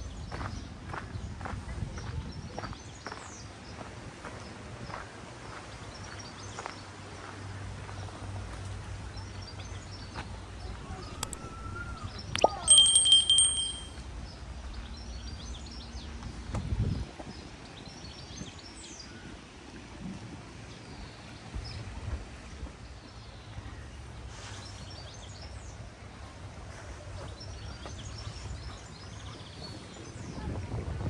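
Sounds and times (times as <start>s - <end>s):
birds chirping: 9.0s - 16.4s.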